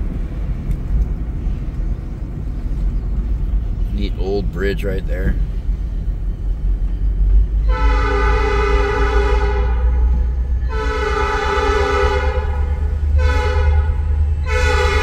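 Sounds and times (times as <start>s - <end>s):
locomotive air horn blasts: 7.6s - 15.0s.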